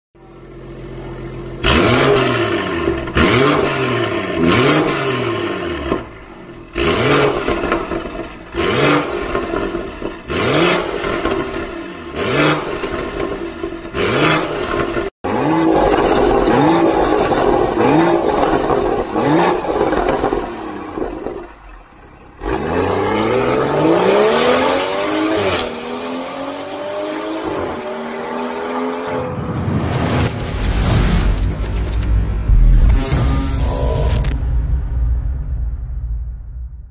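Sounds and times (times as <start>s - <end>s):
car engine revving: 0.5s - 34.5s
car accelerating hard: 1.0s - 6.1s.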